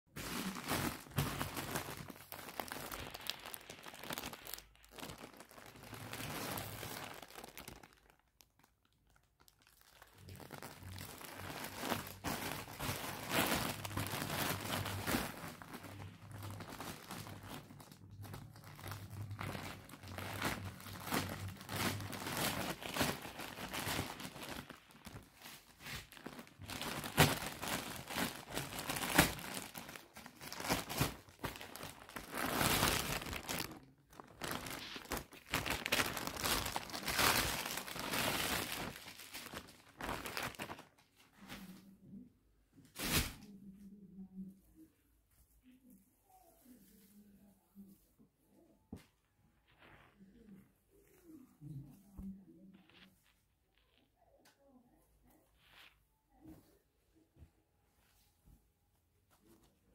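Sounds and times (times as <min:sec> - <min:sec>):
plastic bags crinkling: 0:00.1 - 0:41.6.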